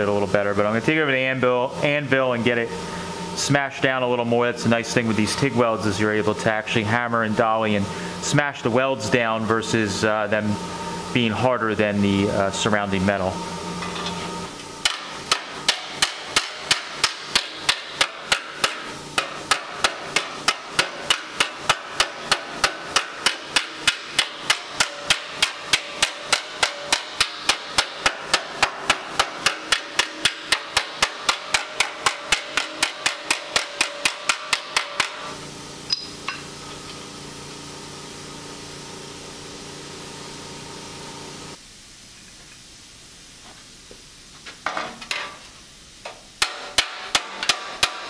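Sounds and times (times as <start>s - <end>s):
steady hum: 0.0s - 48.0s
hammer striking metal: 14.8s - 36.4s, 46.4s - 48.0s.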